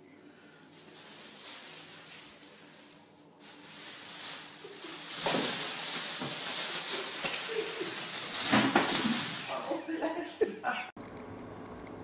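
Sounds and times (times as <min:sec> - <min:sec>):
plastic bag crinkling: 0:00.7 - 0:10.2.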